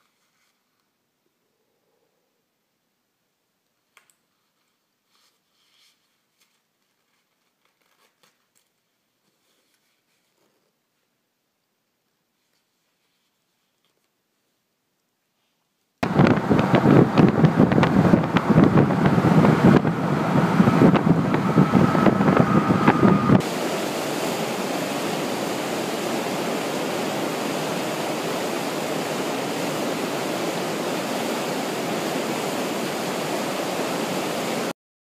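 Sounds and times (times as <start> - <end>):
road and wind noise in car: 16.0 - 23.4
whitewater rushing: 16.0 - 34.7.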